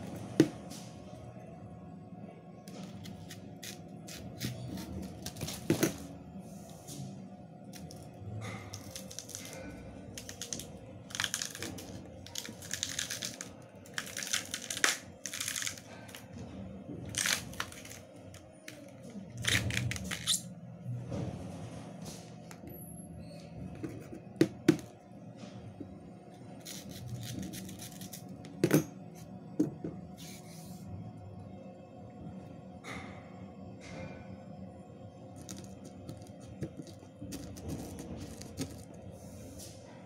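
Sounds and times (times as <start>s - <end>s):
quiet background music: 0.0s - 40.0s
banana skin tearing: 10.2s - 15.8s.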